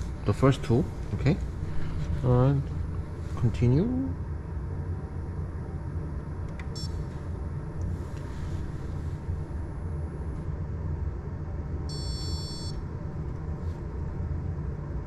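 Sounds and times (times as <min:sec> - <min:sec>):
short high beep: 0:11.9 - 0:12.8.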